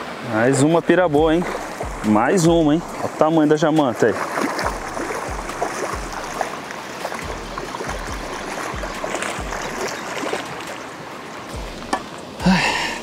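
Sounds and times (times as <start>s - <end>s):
water splashing and churning: 0.0s - 13.0s
wind on microphone: 1.1s - 3.2s.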